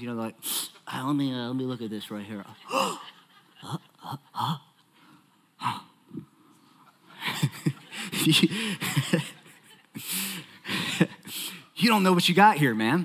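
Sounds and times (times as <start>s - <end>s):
man humming and gasping: 5.6s - 6.4s.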